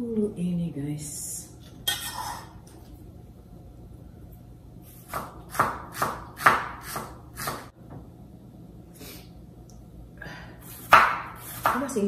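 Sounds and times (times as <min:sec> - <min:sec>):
knife slicing tomato on board: 0:05.0 - 0:07.7, 0:10.7 - 0:12.0.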